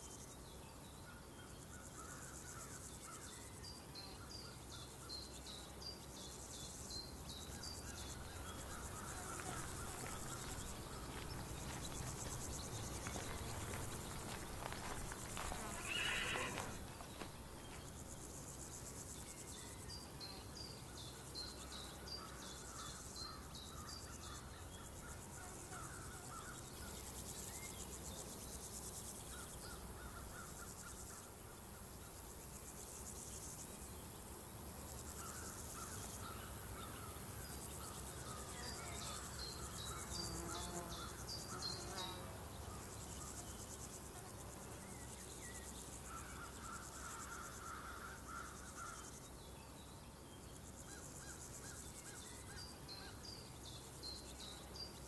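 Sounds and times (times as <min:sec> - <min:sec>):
insects trilling: 0:00.0 - 0:55.0
shrill high insect buzz: 0:06.4 - 0:49.8
birds chirping: 0:07.0 - 0:18.6.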